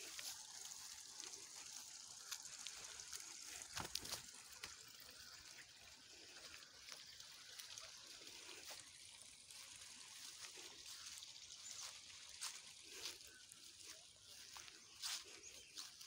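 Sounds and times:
light crackles and rustles: 0:00.0 - 0:05.5
stream trickling: 0:00.0 - 0:16.0.

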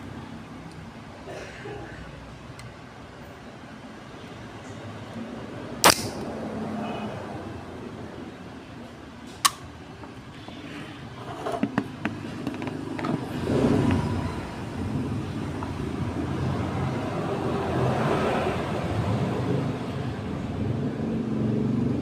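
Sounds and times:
background noise: 0:00.0 - 0:22.0
drink can popping open: 0:05.8 - 0:06.2
handling clicks: 0:05.8 - 0:06.3.

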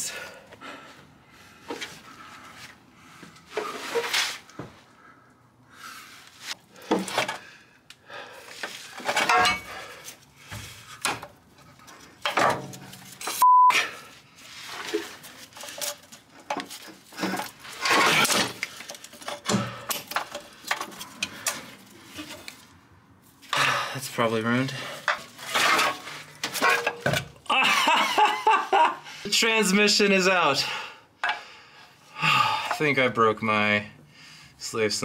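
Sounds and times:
metal clanks and scrapes: 0:08.8 - 0:13.4, 0:14.6 - 0:22.7, 0:25.0 - 0:27.4
censor bleep: 0:13.4 - 0:13.9.

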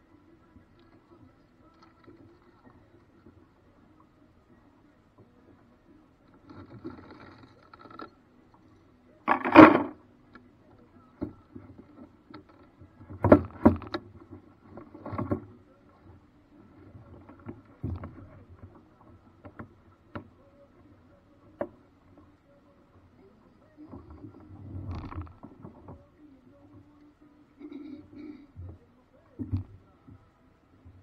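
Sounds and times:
paddle craft knocks and splashes: 0:09.3 - 0:10.0, 0:11.1 - 0:16.2.

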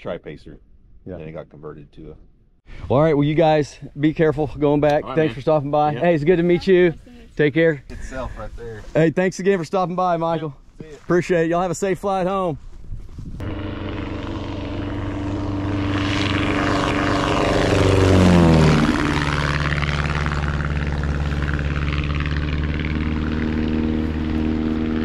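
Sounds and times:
propeller plane engine passing: 0:13.4 - 0:25.0.

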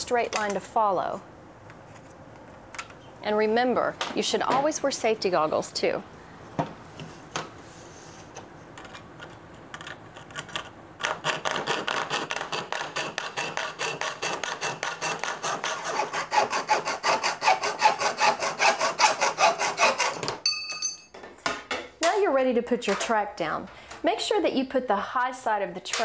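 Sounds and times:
hacksaw cutting metal: 0:11.1 - 0:20.4.

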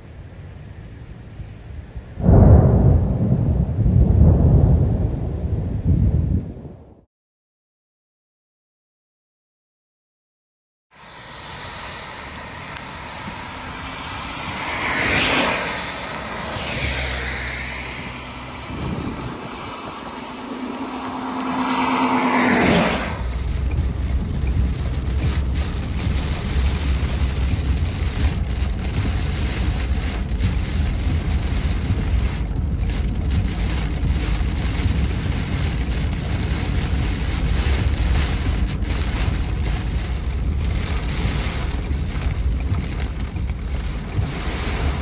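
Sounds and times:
car road and wind rumble: 0:00.0 - 0:07.1, 0:10.9 - 0:45.0
cars swooshing past: 0:11.0 - 0:28.0, 0:44.1 - 0:45.0.

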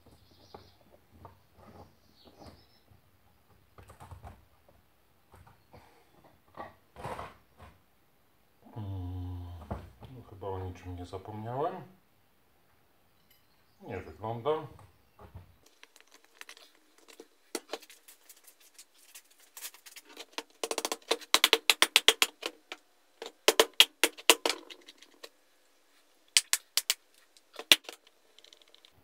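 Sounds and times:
plastic parts clicking and rattling: 0:15.6 - 0:25.4, 0:26.4 - 0:29.0.

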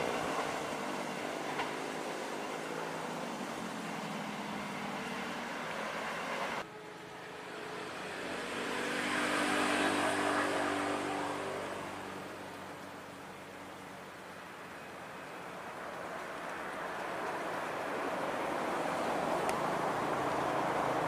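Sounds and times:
train wheels rumbling on rails: 0:00.0 - 0:06.6, 0:15.2 - 0:21.0
diesel locomotive engine: 0:00.0 - 0:21.0
passing train rumble: 0:00.0 - 0:21.0.

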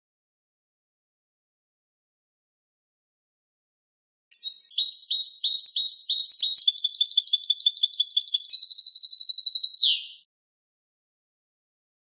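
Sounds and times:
goldfinch song: 0:04.3 - 0:10.3.

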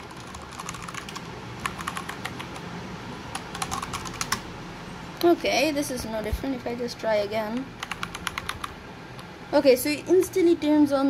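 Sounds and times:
mechanical keyboard keys clicking: 0:00.1 - 0:02.6, 0:03.3 - 0:04.4, 0:07.6 - 0:08.7.

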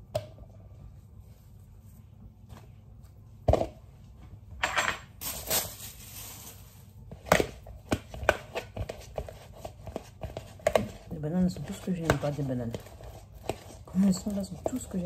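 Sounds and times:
rustling: 0:05.2 - 0:06.9.

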